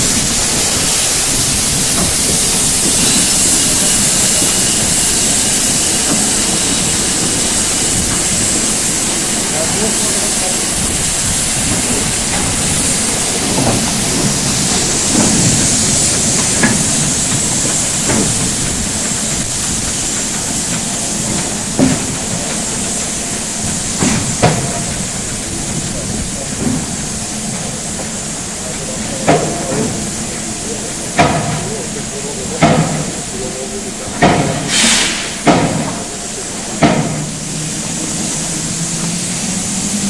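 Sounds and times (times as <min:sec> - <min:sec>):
steam hissing: 0:00.0 - 0:40.0.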